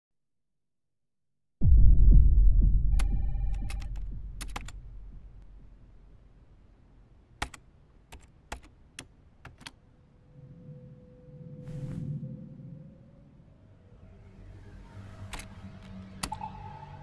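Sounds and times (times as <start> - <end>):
low deep hum: 1.6 - 6.6
keyboard keystroke clicks: 3.0 - 4.8, 7.4 - 9.8.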